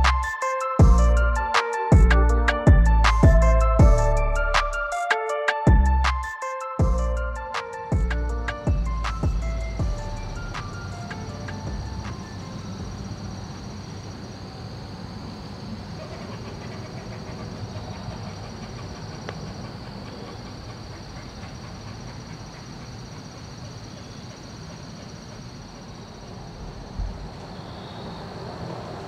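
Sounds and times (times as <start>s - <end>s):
high insect trill: 6.3s - 29.0s.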